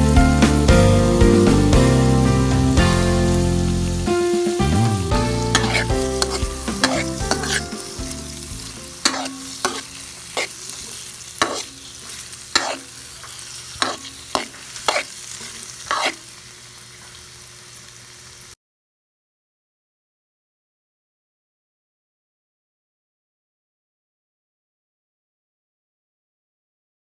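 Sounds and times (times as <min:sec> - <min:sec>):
food sizzling in a pan: 0:00.0 - 0:18.6
utensil scraping and knocking pan: 0:05.5 - 0:07.9, 0:09.0 - 0:10.6, 0:11.4 - 0:15.1, 0:15.8 - 0:16.2.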